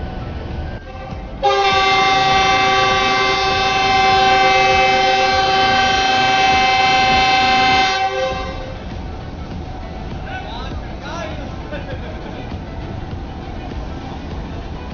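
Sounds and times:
locomotive air horn blast: 0.8 - 8.8.

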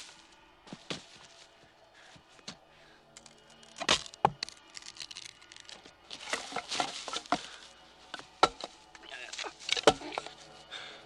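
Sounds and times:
tearing crunching noise: 3.2 - 7.5.

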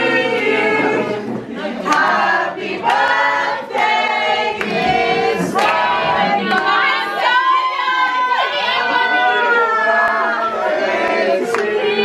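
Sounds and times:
group singing in unison: 0.0 - 12.0
hand claps: 1.9 - 2.2, 4.6 - 5.0, 5.6 - 5.8, 11.4 - 11.7.

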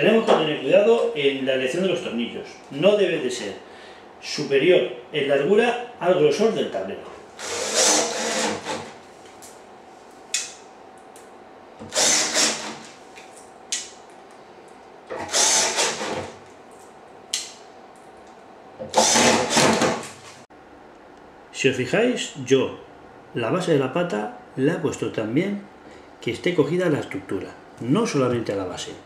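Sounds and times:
drill-driver driving screws: 7.4 - 8.9, 11.8 - 12.9, 15.2 - 16.3, 18.9 - 20.0.

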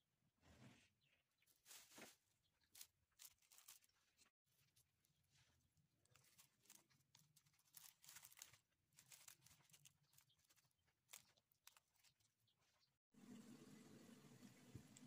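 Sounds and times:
plastic cling film crinkling: 1.5 - 12.8.

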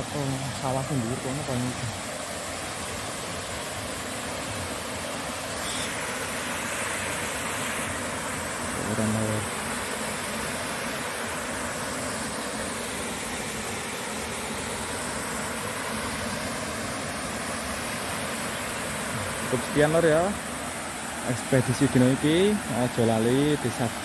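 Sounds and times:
waterfall rushing: 0.0 - 24.0.

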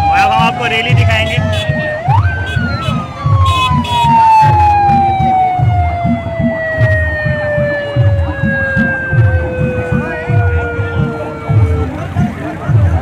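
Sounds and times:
low thumping beat: 0.0 - 13.0
vehicle siren: 0.0 - 13.0.

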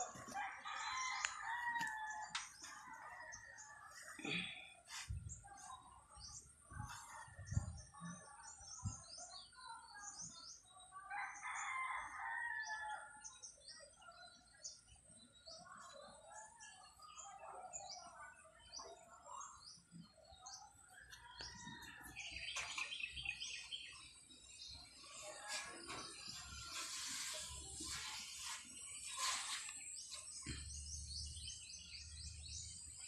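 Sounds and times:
small birds chirping: 13.4 - 33.0.

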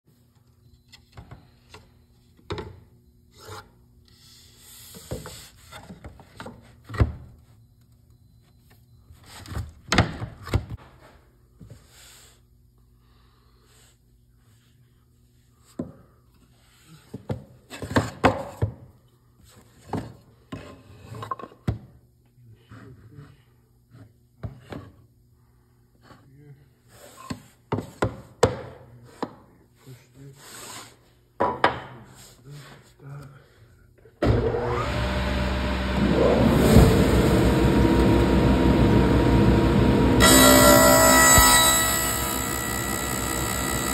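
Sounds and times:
wood scraping on wood and metal: 40.2 - 43.9.

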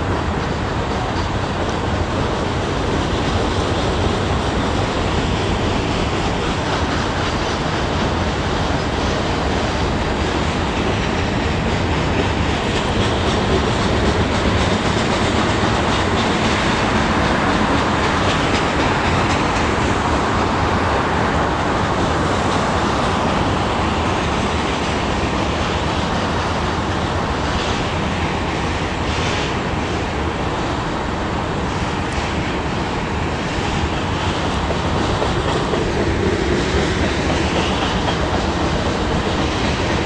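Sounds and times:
train wheels on track: 0.0 - 40.0
faint rail clicks: 10.4 - 30.0.

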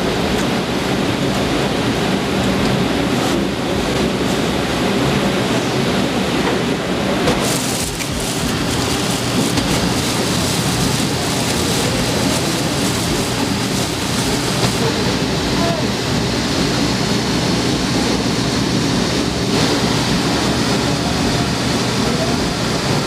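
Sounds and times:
running water rushing: 7.0 - 23.0.

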